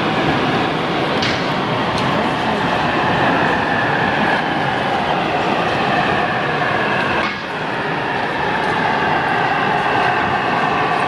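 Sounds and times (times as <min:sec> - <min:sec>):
model locomotive running on track: 0:00.0 - 0:11.0.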